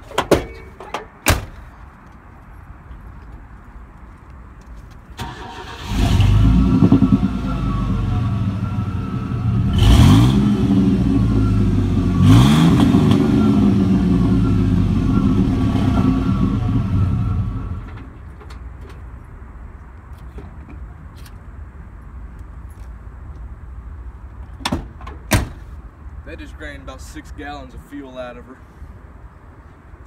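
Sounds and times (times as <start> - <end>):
pickup engine starting and idling: 5.2 - 18.0
engine revving with loud exhaust: 5.8 - 17.9.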